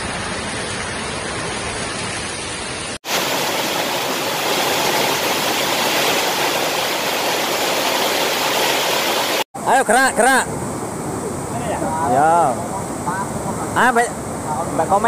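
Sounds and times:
heavy rain pouring: 0:00.0 - 0:09.5.

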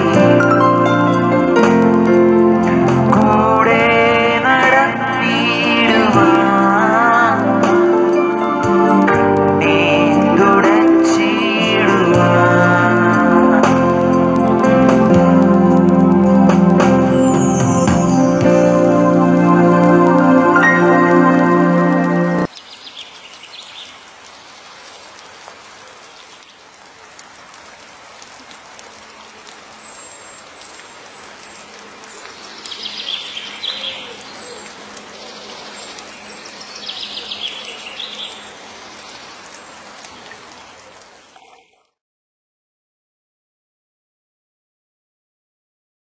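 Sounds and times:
steady rain falling: 0:00.0 - 0:42.0
bird chirping: 0:22.6 - 0:24.0, 0:29.8 - 0:41.6.

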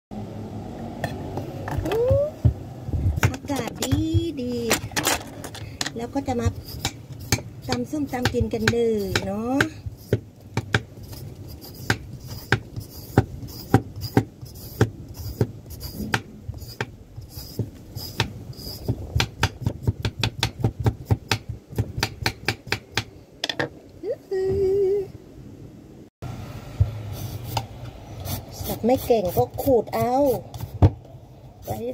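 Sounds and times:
peeler strokes on papaya: 0:06.2 - 0:10.2, 0:11.0 - 0:19.0, 0:27.0 - 0:30.8, 0:31.6 - 0:31.9.

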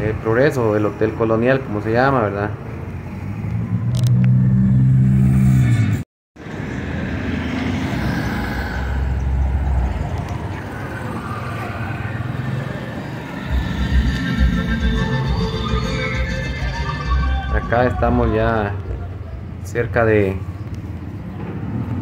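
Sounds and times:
car traffic and street noise: 0:00.0 - 0:22.0
low rumbles: 0:06.6 - 0:22.0.

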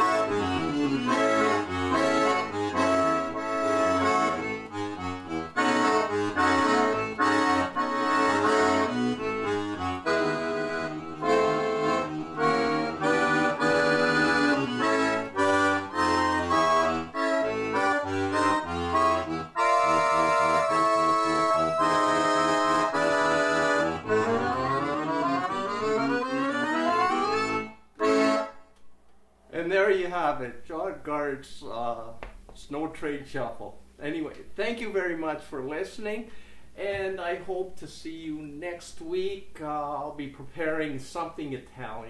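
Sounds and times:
accordion playing ragtime shuffle: 0:00.0 - 0:28.8.

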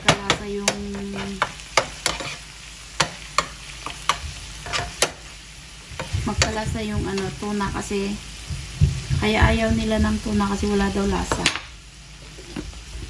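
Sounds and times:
frying sizzle: 0:00.0 - 0:13.0
metal spoon scraping frying pan: 0:00.3 - 0:05.3.

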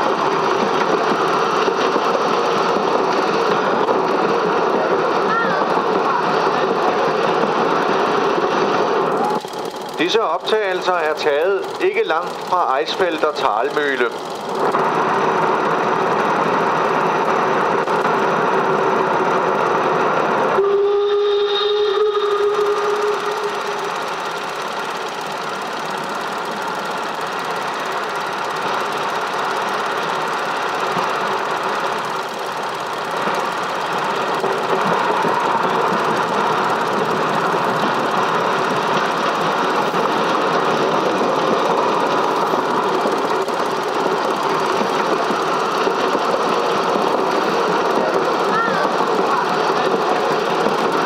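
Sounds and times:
mechanical clatter: 0:09.1 - 0:17.1, 0:22.4 - 0:51.0
steam whistle: 0:20.5 - 0:24.1.

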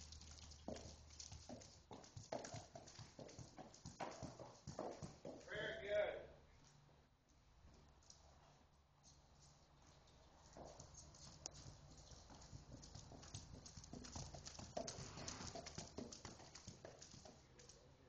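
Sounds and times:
horse hoofbeats on dirt: 0:00.0 - 0:05.5, 0:09.4 - 0:17.8.

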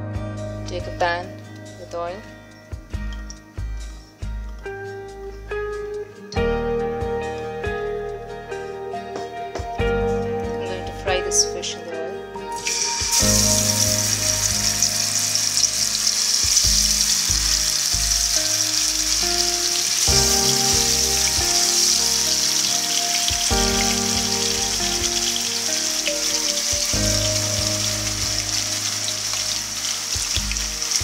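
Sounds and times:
background music: 0:00.0 - 0:31.0
fish sizzling in hot oil: 0:12.6 - 0:31.0.

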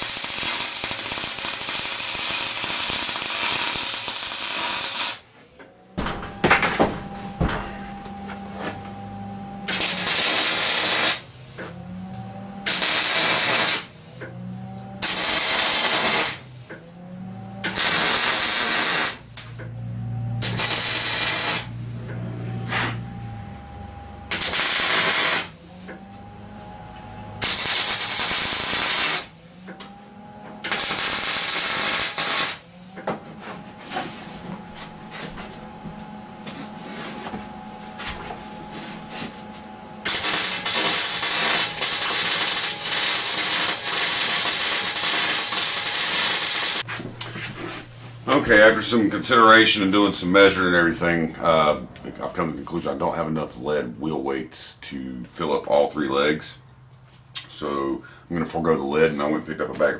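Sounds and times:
welding arc crackling and hissing: 0:00.0 - 0:05.3, 0:09.6 - 0:11.3, 0:12.7 - 0:14.0, 0:15.0 - 0:16.5, 0:17.6 - 0:19.6, 0:20.4 - 0:21.8, 0:24.3 - 0:25.6, 0:27.4 - 0:29.4, 0:30.6 - 0:32.7, 0:40.0 - 0:46.9.

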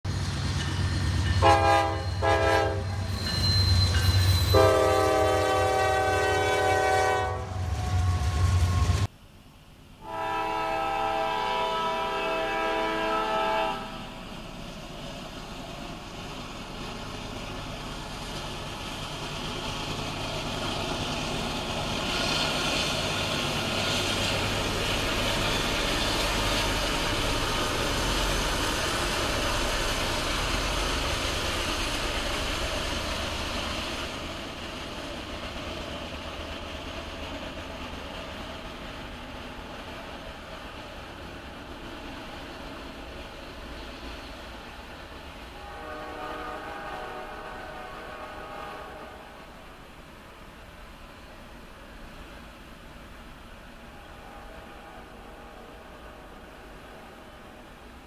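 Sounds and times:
train rolling on rails: 0:00.0 - 0:58.0
locomotive air horn blasts: 0:01.4 - 0:03.1, 0:04.5 - 0:09.1, 0:10.0 - 0:14.1, 0:45.6 - 0:49.4, 0:54.1 - 0:56.0.

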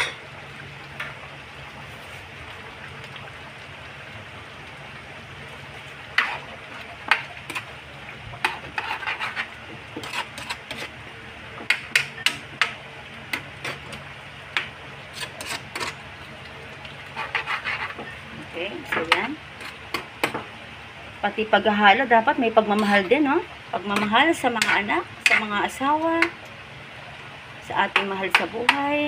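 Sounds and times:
spatula scraping a pot: 0:06.2 - 0:06.5, 0:08.4 - 0:10.9, 0:15.1 - 0:16.0, 0:17.1 - 0:18.2, 0:24.0 - 0:25.6.

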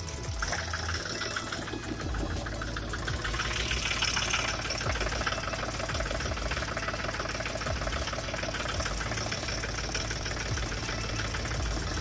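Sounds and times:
tractor diesel engine idling: 0:00.0 - 0:12.0.

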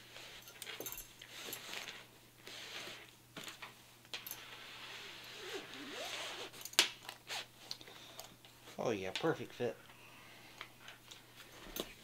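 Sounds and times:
fabric rubbing against gun: 0:04.4 - 0:06.6.

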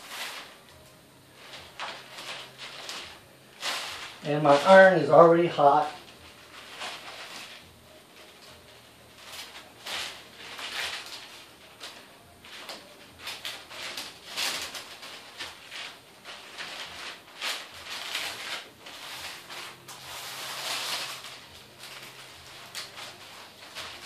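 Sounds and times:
paper and plastic crinkling: 0:00.0 - 0:24.0.

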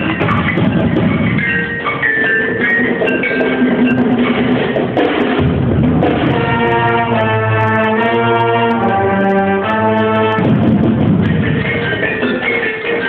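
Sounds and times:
percussion strikes: 0:00.0 - 0:13.0
brass chords: 0:05.4 - 0:11.7.

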